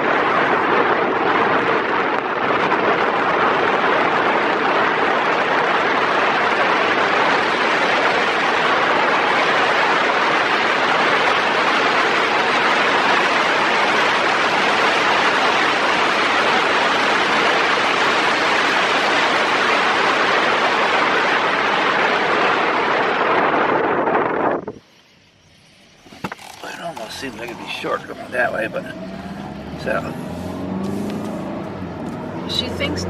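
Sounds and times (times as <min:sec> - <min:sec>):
wind and road noise in car: 0:00.0 - 0:33.0.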